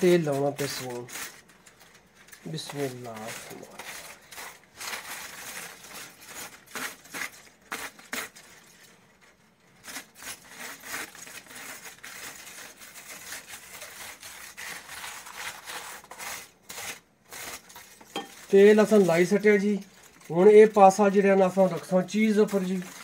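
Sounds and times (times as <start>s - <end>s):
foil crinkling: 0.0s - 23.0s.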